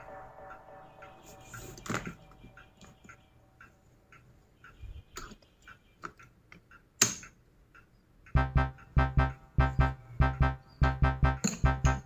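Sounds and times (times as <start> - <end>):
faint steady ticking: 0.0 - 12.0
music with heavy beat: 8.4 - 12.0.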